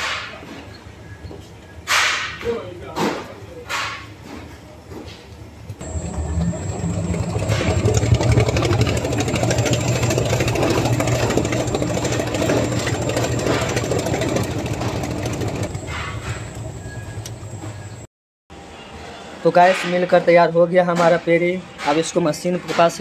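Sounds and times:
dough mixer motor humming: 5.8s - 15.8s.

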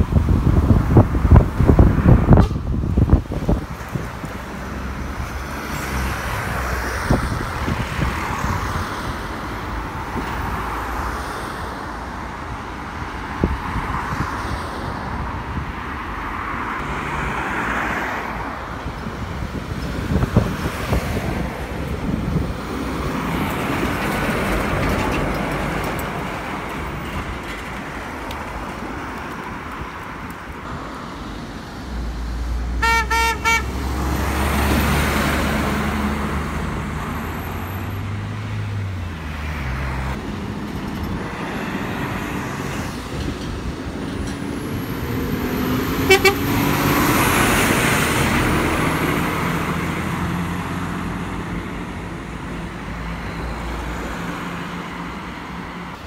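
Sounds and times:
vehicles driving past: 0.0s - 56.0s
horn short toots: 2.3s - 2.7s, 32.8s - 33.7s, 46.1s - 46.6s.

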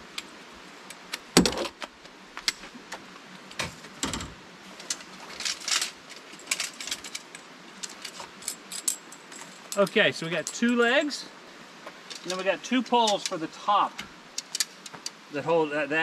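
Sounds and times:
metal poles clicking and clinking: 4.8s - 11.2s, 12.0s - 13.5s, 14.4s - 15.2s.

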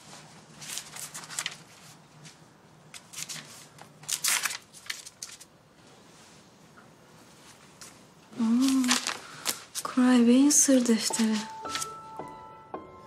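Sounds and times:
notebook pages rustling: 0.0s - 5.5s, 7.4s - 10.1s, 10.7s - 12.0s.

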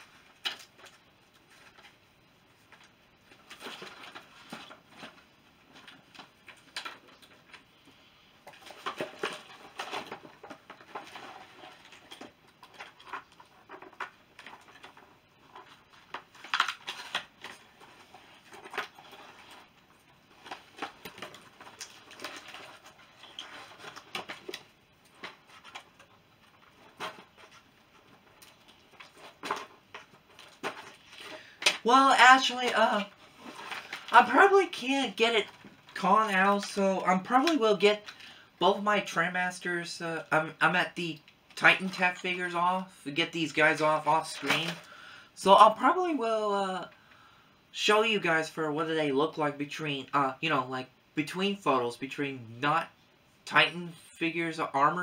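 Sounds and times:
plastic clicks and rustles: 0.0s - 2.0s, 2.6s - 38.4s.

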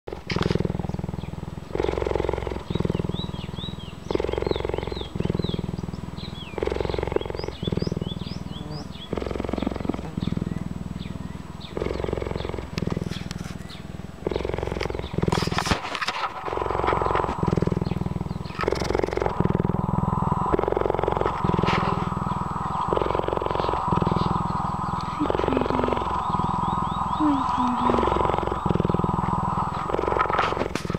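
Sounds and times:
cheetah purring: 0.0s - 30.9s.

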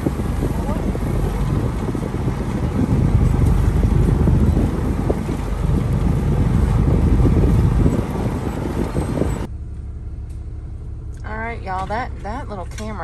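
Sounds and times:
wind buffeting microphone: 0.0s - 9.5s
vehicle engine running: 0.0s - 13.0s.

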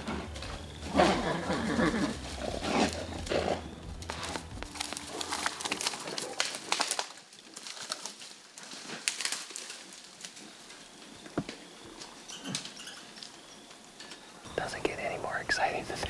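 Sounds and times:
bird calling: 0.0s - 6.2s, 10.8s - 15.0s.

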